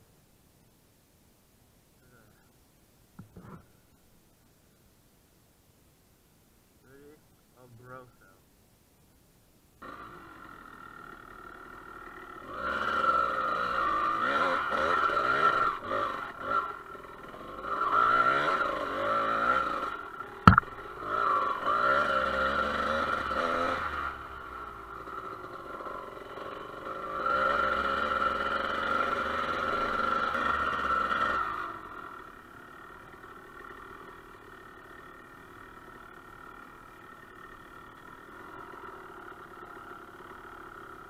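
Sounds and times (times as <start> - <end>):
dirt bike engine revving: 9.8 - 41.0
sharp knock: 20.5 - 20.7.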